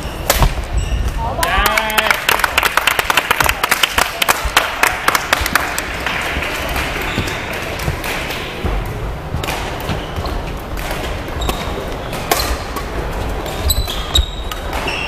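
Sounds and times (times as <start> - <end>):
court shoes squeaking on floor: 0.0 - 1.3, 6.6 - 15.0
rackets hitting shuttlecock: 0.2 - 0.7, 6.3 - 15.0.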